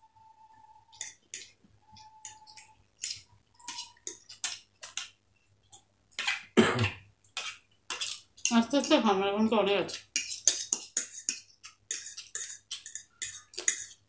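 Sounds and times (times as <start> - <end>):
forks clicking on plates: 0.9 - 5.2, 10.2 - 14.0.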